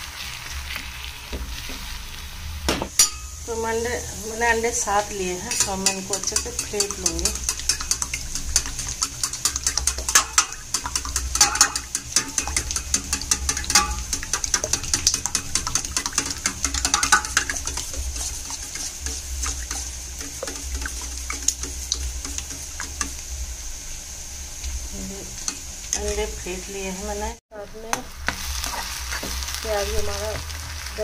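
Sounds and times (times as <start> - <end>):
spoon clinking against steel bowl: 3.0 - 3.4, 5.5 - 23.2
eggs sloshing: 5.6 - 23.5.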